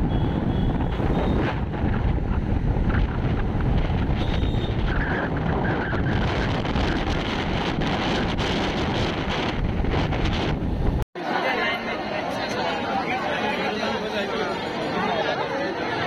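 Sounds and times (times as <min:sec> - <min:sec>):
wind rushing over microphone: 0:00.0 - 0:11.0
road and traffic noise: 0:00.0 - 0:16.0.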